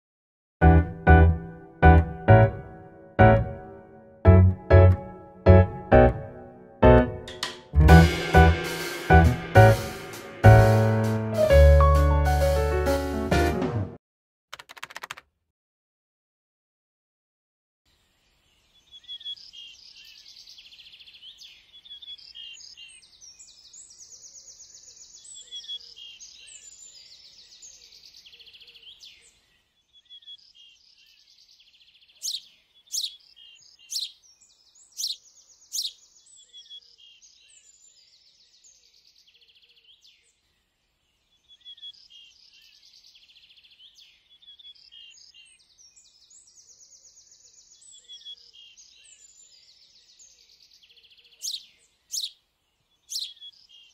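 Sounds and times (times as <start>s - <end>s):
small birds chirping: 17.9s - 53.9s.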